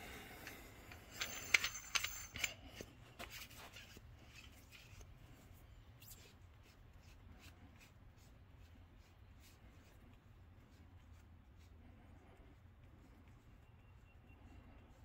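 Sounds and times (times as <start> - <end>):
metal parts clicking on workbench: 0.4 - 4.5.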